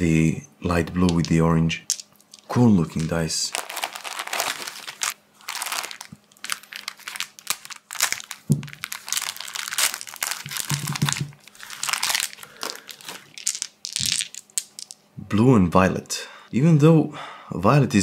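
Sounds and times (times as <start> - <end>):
plastic bags crinkling: 1.9 - 15.0.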